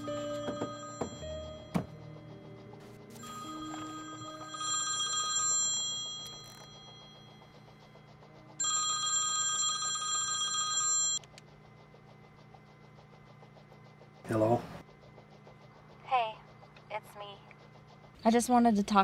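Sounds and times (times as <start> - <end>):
cell phone ringtone: 0.0 - 2.0, 3.1 - 7.5, 8.6 - 11.2.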